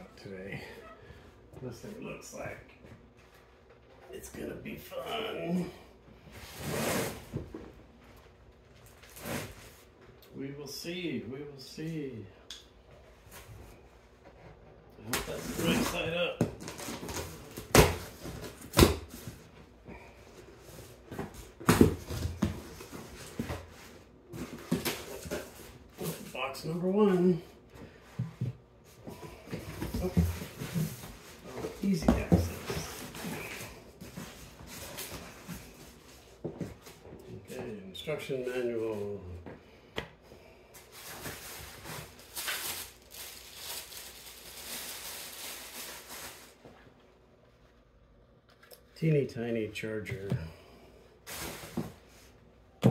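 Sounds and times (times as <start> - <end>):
plastic packaging crinkling: 41.3 - 46.6.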